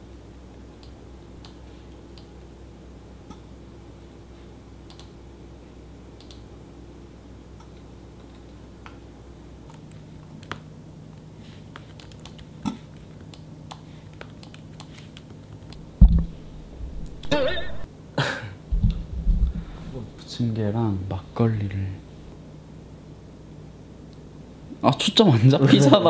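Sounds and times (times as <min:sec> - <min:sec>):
faint steady hum: 0:00.0 - 0:26.0
laptop keyboard typing: 0:11.7 - 0:15.8.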